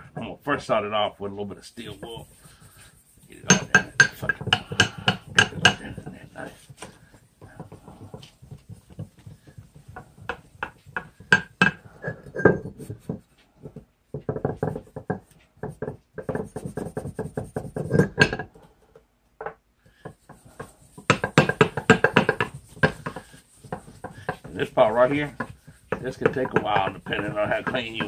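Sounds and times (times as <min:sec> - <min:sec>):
steel wool scrubbing metal: 0:01.4 - 0:12.2, 0:20.2 - 0:28.0.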